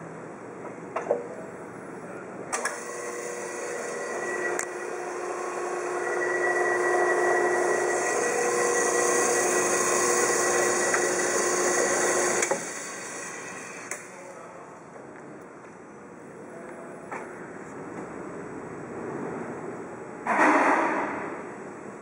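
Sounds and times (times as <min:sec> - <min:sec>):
band saw cutting metal: 0:02.6 - 0:14.1.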